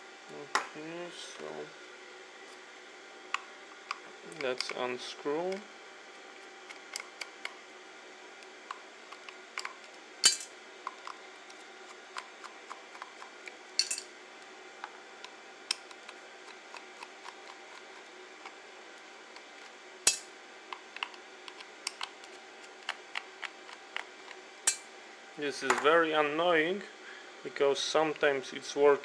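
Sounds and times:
metal parts clinking in bowl: 0:13.8 - 0:14.1.

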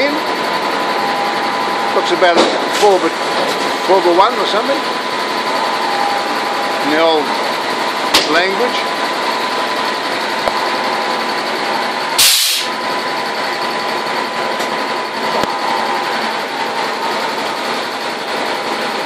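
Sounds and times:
sawmill machinery running: 0:00.0 - 0:19.0
sharp hiss: 0:12.2 - 0:12.7.

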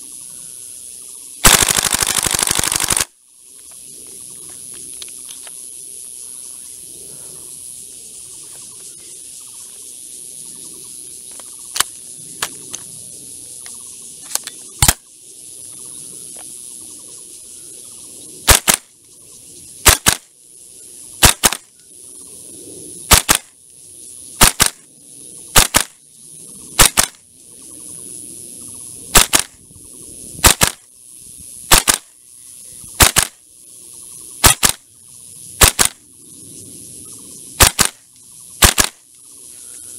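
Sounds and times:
high insect buzz: 0:00.0 - 0:39.9
airsoft rifle shots: 0:01.4 - 0:03.2, 0:14.3 - 0:15.1, 0:18.4 - 0:18.9, 0:19.8 - 0:20.3, 0:21.2 - 0:21.7, 0:23.1 - 0:23.5, 0:24.4 - 0:24.8, 0:25.5 - 0:26.0, 0:26.8 - 0:27.2, 0:29.1 - 0:29.6, 0:30.4 - 0:30.8, 0:31.7 - 0:32.1, 0:33.0 - 0:33.4, 0:34.4 - 0:34.8, 0:35.6 - 0:36.0, 0:37.6 - 0:38.0, 0:38.6 - 0:39.0.

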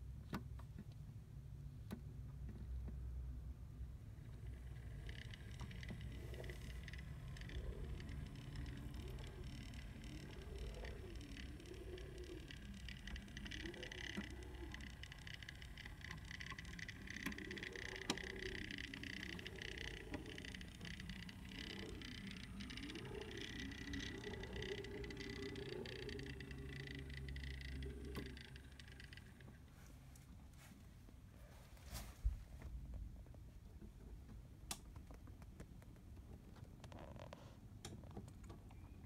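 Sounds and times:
model train motor whining: 0:04.2 - 0:29.5
hum rising and falling in pitch: 0:04.2 - 0:29.6.

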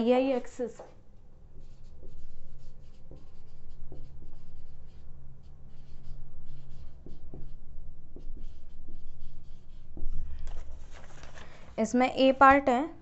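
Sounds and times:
marker scratching on whiteboard: 0:01.5 - 0:10.9.

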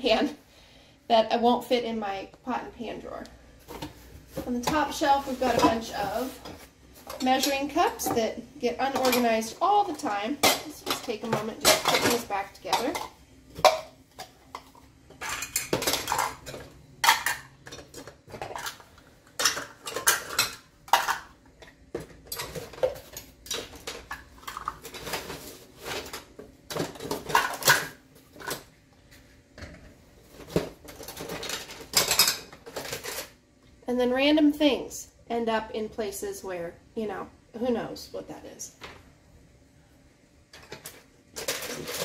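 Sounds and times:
plastic measuring cups clattering: 0:03.6 - 0:28.7, 0:29.6 - 0:33.4, 0:40.5 - 0:42.0
utensils rattling in a box: 0:41.4 - 0:42.0.

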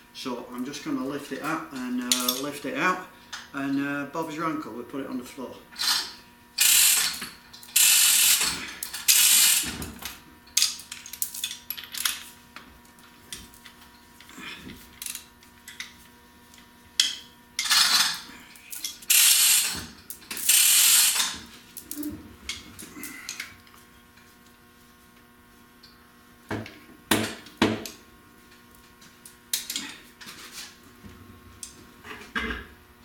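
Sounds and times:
ratchet clicks: 0:05.8 - 0:09.7, 0:18.8 - 0:21.4.

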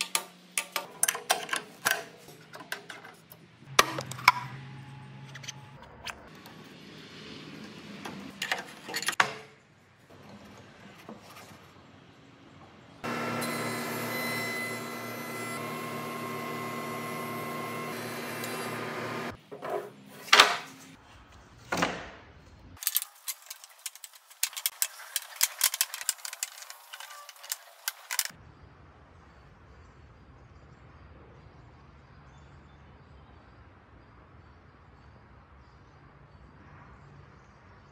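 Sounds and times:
router cutter running: 0:13.0 - 0:19.4.

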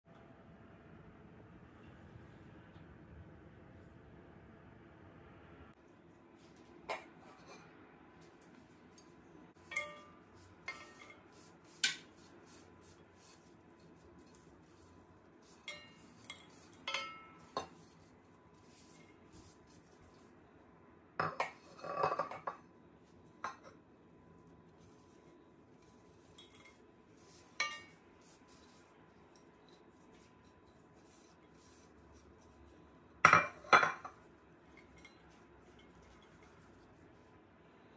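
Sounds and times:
plate clinking against metal pan: 0:09.7 - 0:11.2.

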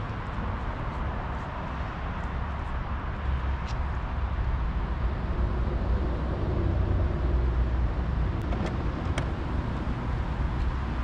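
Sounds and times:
steady low rumble: 0:03.9 - 0:11.0.

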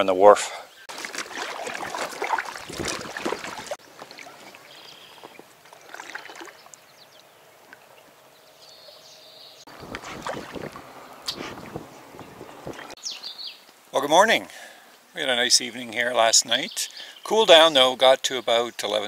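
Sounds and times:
small water sounds: 0:00.8 - 0:09.0, 0:09.6 - 0:13.1
paddle splashing water: 0:00.9 - 0:08.1, 0:09.7 - 0:13.0
faint high bird calls: 0:03.8 - 0:10.0.

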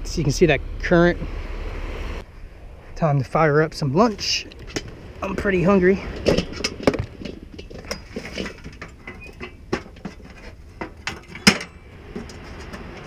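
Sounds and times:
clicks and knocks of items moved: 0:06.0 - 0:13.0.

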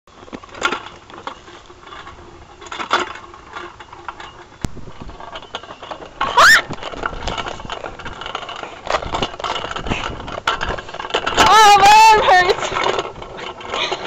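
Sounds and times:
spinner seat rattling and clicking: 0:00.1 - 0:14.0.

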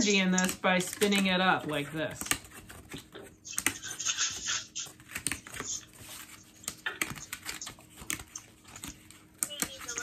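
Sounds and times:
cardboard clicks and taps: 0:02.0 - 0:04.0, 0:04.9 - 0:10.0.

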